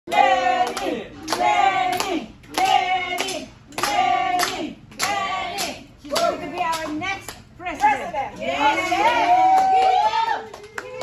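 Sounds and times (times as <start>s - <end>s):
group chanting: 0.1s - 6.4s
hand claps: 0.1s - 7.9s, 9.5s - 11.0s.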